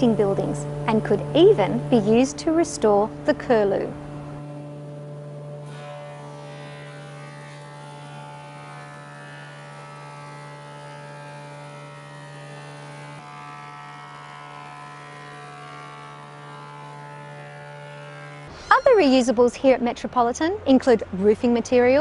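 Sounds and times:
thickness planer humming: 0.0s - 22.0s.

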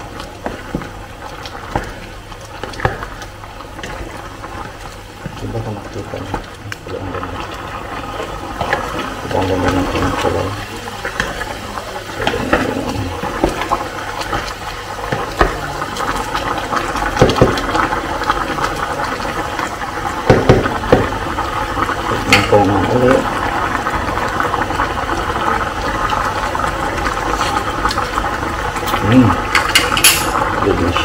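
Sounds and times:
sauce boiling and spattering: 0.0s - 31.0s
spoon knocking on pot: 20.2s - 21.1s.

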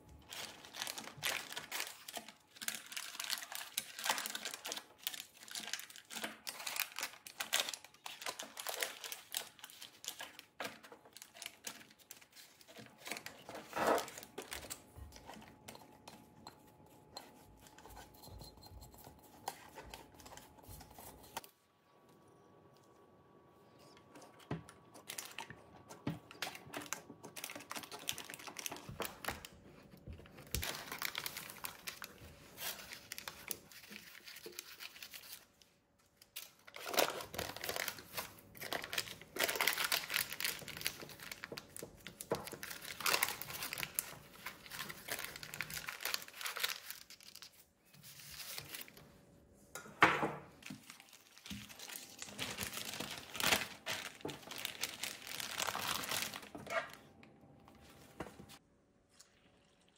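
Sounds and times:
parchment paper crinkling: 0.0s - 21.5s, 23.7s - 49.2s, 50.5s - 57.1s
plastic film rustling: 0.2s - 15.7s, 23.9s - 49.1s, 50.5s - 57.1s.

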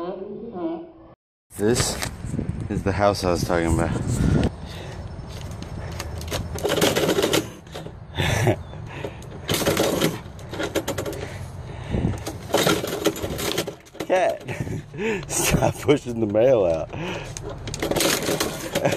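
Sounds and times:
metal mail-slot flap clacking: 17.3s - 18.9s.

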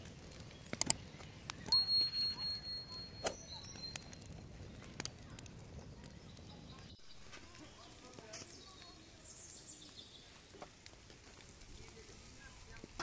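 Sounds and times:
high ringing metal tone: 1.7s - 3.4s.

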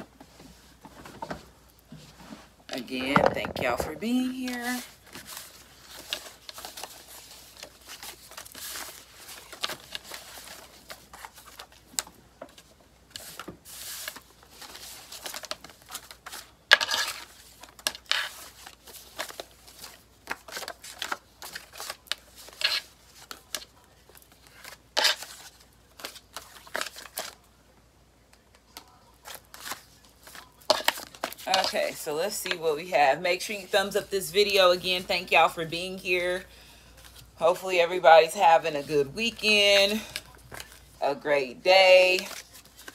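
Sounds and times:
paper rustling and crinkling: 3.1s - 27.5s, 28.3s - 32.6s, 38.8s - 41.0s, 41.8s - 42.9s.

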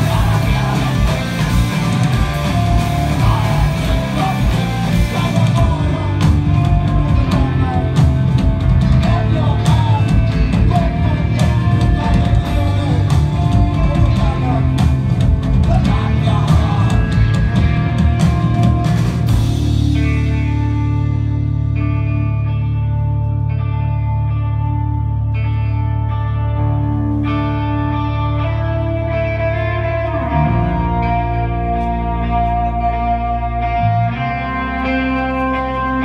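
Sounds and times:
man singing: 0.0s - 17.7s
drums: 0.0s - 25.0s
rock band playing: 0.0s - 36.0s.

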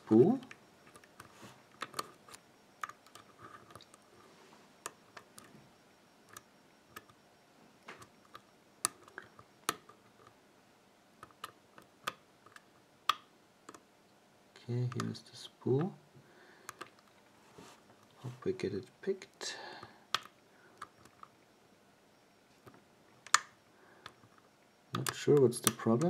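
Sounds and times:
lock pick metallic clicks: 23.2s - 24.4s.

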